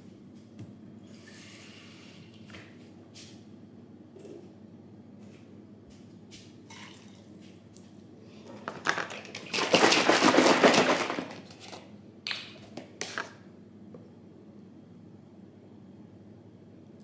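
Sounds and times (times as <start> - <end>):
kitchen items rattling and rustling: 8.4 - 11.9.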